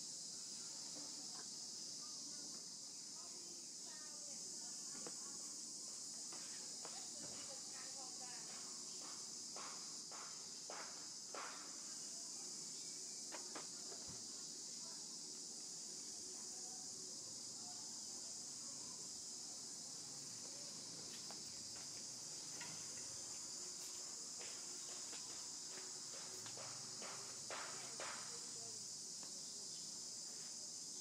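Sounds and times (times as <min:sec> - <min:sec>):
high-pitched insect chorus: 0:00.0 - 0:31.0.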